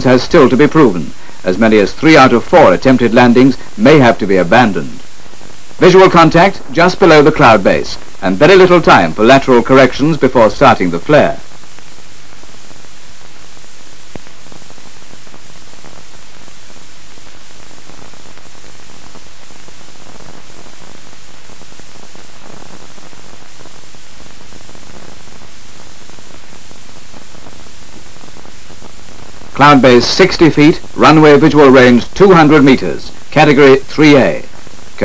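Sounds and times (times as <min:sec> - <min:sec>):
film soundtrack hiss: 0:00.0 - 0:35.0
faint crackles and clicks: 0:00.5 - 0:35.0.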